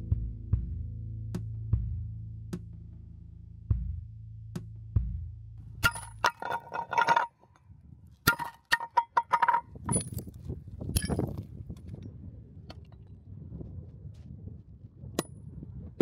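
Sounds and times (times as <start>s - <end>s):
music: 0.0s - 6.1s
hammer striking metal plate: 5.8s - 7.3s, 8.3s - 10.1s.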